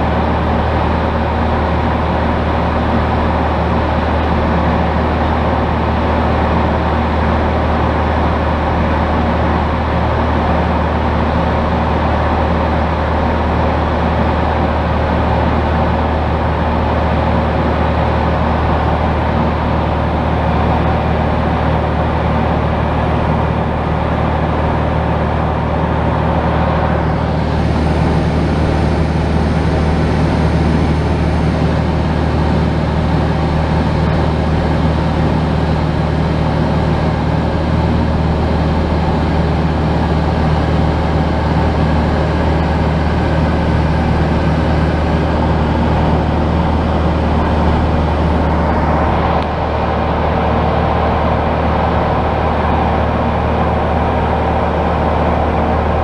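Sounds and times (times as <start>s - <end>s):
light aircraft engine droning: 0.0s - 56.0s.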